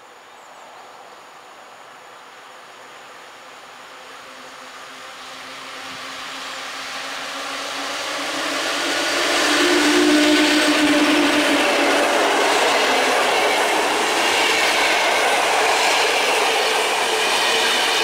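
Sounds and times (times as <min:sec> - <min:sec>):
electric locomotive humming: 0:02.3 - 0:18.0
train coaches rolling on rails: 0:03.6 - 0:18.0.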